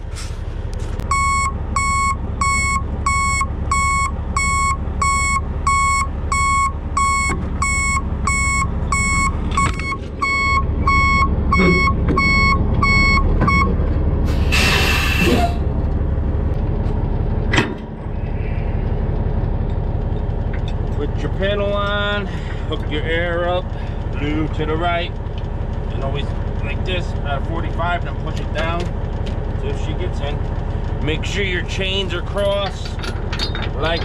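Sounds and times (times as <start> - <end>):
diesel engine running: 0.0 - 34.0
backup alarm beeping: 1.1 - 13.7
air hiss: 14.3 - 15.4.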